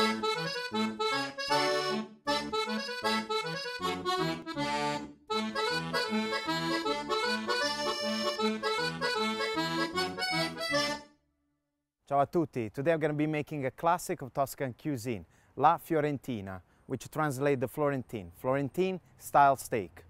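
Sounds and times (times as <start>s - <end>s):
two-note bass line: 0.0s - 11.0s
instrumental theme music: 0.0s - 11.3s
person speaking: 12.1s - 20.0s.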